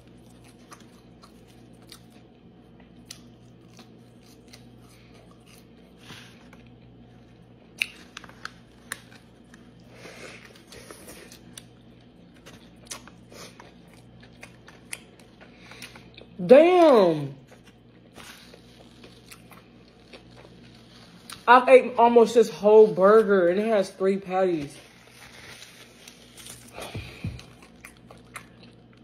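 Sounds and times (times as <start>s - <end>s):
person chewing food: 0.0s - 21.5s, 24.8s - 29.0s
faint steady hum: 0.0s - 29.0s.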